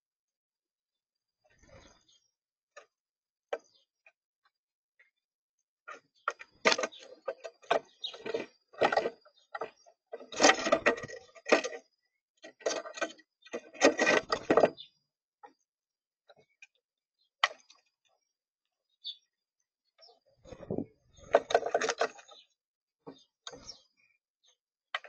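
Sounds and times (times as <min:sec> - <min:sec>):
birds pecking at feeder: 0:05.9 - 0:15.6, 0:20.4 - 0:24.1.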